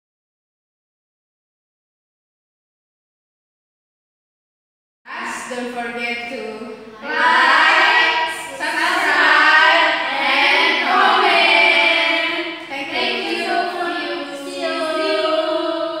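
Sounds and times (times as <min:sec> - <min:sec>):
young women singing in unison: 0:07.0 - 0:16.0.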